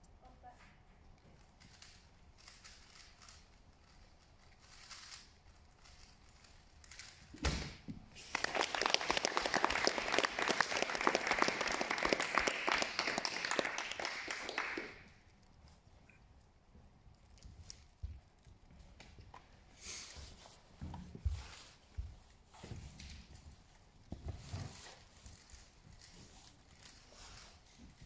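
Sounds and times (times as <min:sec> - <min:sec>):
thump: 0:07.4 - 0:08.0
audience clapping: 0:08.1 - 0:15.2.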